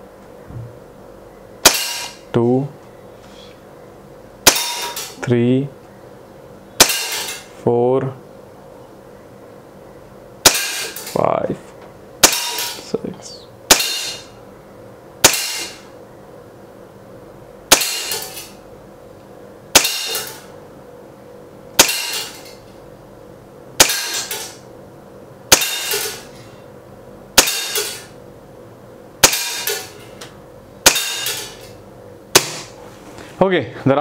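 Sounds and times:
air pistol shots: 1.6s - 2.2s, 4.4s - 5.2s, 6.8s - 7.4s, 10.4s - 11.2s, 12.2s - 12.8s, 13.7s - 14.3s, 15.2s - 15.8s, 17.7s - 18.5s, 19.7s - 20.5s, 21.8s - 22.4s, 23.8s - 24.6s, 25.5s - 26.3s, 27.4s - 28.1s, 29.2s - 30.0s, 30.8s - 31.7s, 32.3s - 32.8s.

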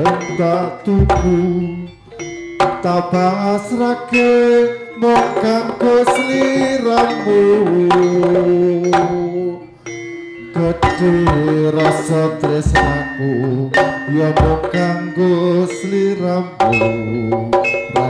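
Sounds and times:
sharp drum strokes: 0.0s - 3.3s
live percussion ensemble music: 0.0s - 18.0s.

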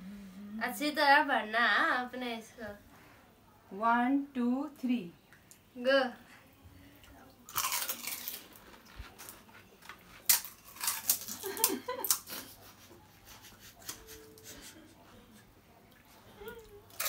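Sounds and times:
crunching while eating: 7.5s - 12.4s
muffled laugh: 11.4s - 15.6s.

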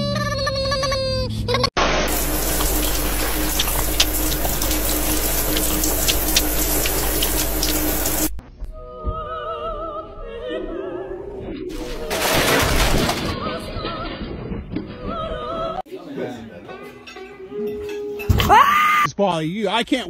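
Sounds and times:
loud burst of noise: 1.8s - 8.4s
water running hard: 1.8s - 8.4s
operatic singing: 2.4s - 12.2s.

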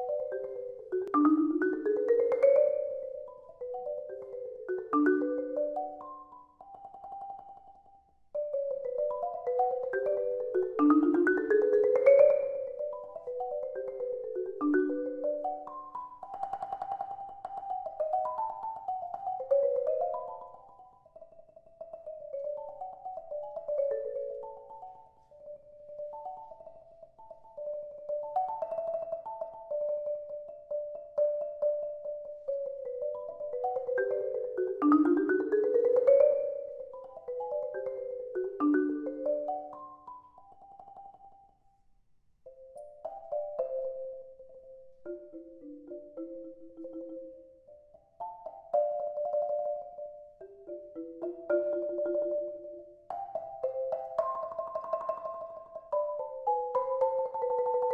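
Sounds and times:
marimba playing: 0.0s - 41.3s, 42.5s - 57.9s.

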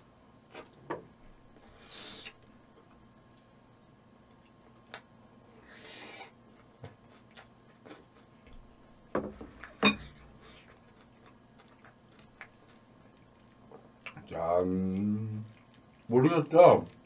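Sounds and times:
wet chewing clicks: 10.4s - 17.0s.

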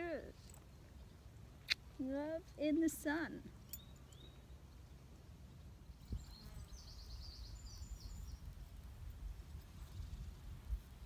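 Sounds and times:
high bird chirping: 3.6s - 5.0s, 5.9s - 8.5s
wind rumble on microphone: 5.9s - 11.0s.

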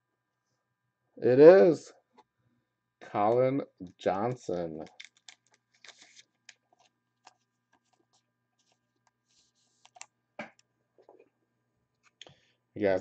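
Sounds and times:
card handling clicks and rustles: 4.8s - 9.1s, 9.7s - 10.1s.

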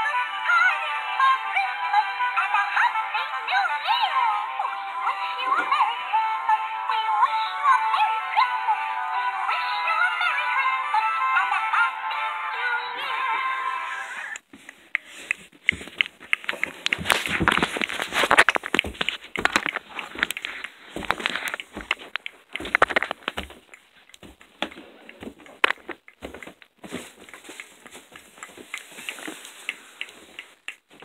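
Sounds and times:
plush toy rustling and rubbing: 14.5s - 31.0s.

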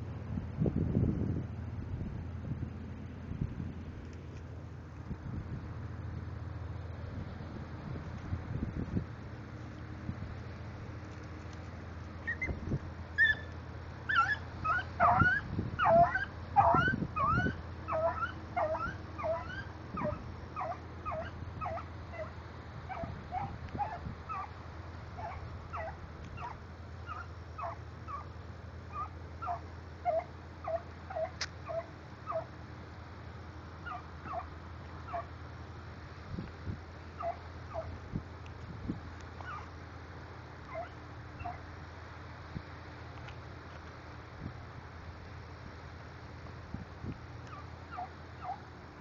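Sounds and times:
dog yipping: 13.2s - 13.5s, 14.1s - 22.3s, 22.9s - 24.5s, 25.2s - 28.3s, 28.9s - 32.5s, 33.9s - 34.5s, 35.1s - 35.3s, 37.2s - 37.9s, 39.4s - 39.7s, 40.7s - 41.6s, 47.5s - 48.6s.

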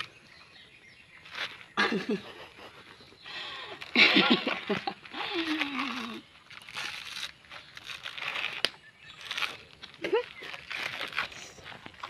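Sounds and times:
coconut husk tearing: 1.2s - 1.8s, 4.7s - 12.0s.

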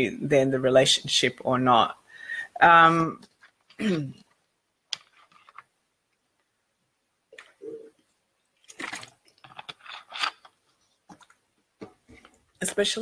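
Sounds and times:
mouth clicks and smacking: 7.3s - 9.8s.

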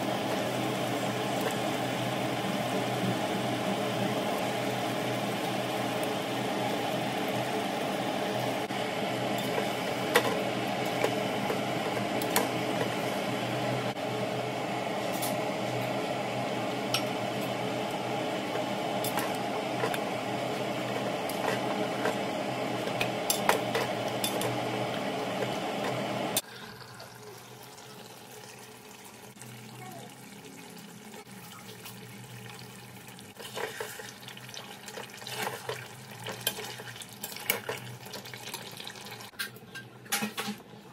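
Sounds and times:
mechanical kitchen hum: 0.0s - 40.9s.

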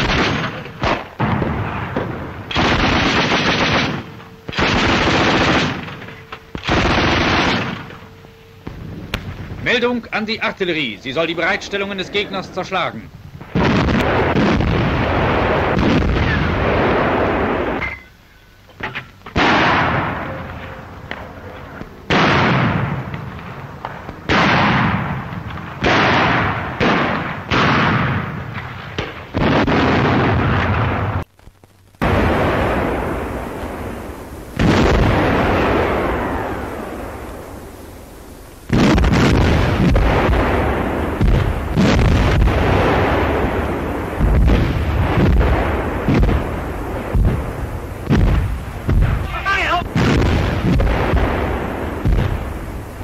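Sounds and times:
sharp cracks: 0.0s - 9.9s, 13.4s - 18.0s, 18.6s - 53.0s
heavy rumble of gunfire: 0.0s - 10.0s, 13.2s - 17.8s, 19.2s - 31.3s, 32.0s - 53.0s
loud artillery blast: 0.0s - 10.0s, 12.1s - 17.9s, 19.3s - 21.3s, 22.1s - 31.2s, 32.0s - 37.8s, 38.7s - 53.0s
long rolling echo: 0.0s - 17.8s, 32.0s - 53.0s.

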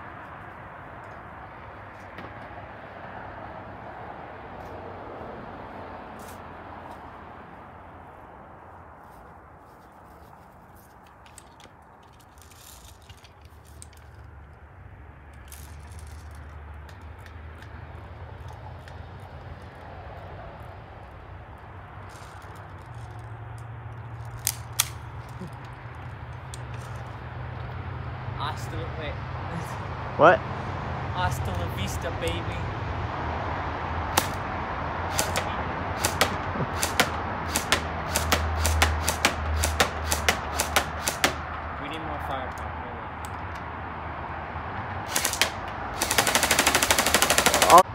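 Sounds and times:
faint outdoor background: 0.0s - 47.9s
airsoft rifle shots snapping: 34.1s - 34.4s, 35.1s - 41.6s, 45.1s - 47.8s.

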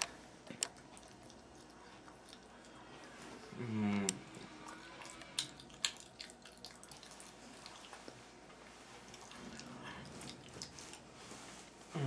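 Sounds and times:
wet mouth clicks of chewing: 5.0s - 7.9s.

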